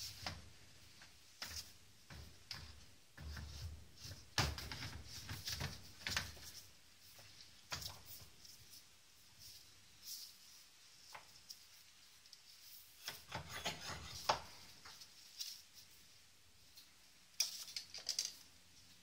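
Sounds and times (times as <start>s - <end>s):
handling rubs clicks and knocks: 0.0s - 16.1s.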